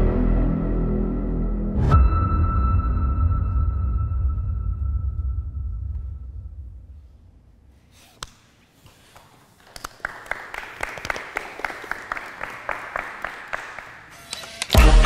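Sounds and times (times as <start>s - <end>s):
small group applauding: 9.1s - 14.8s.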